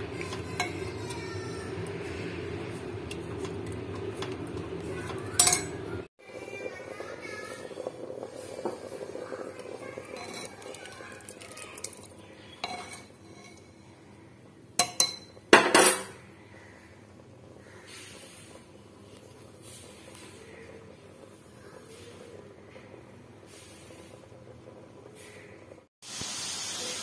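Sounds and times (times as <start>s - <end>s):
metal spoon stirring in pan: 0.0s - 6.0s, 9.8s - 13.9s
spoon clinking against pan: 10.2s - 10.6s, 12.6s - 13.7s, 14.8s - 16.1s.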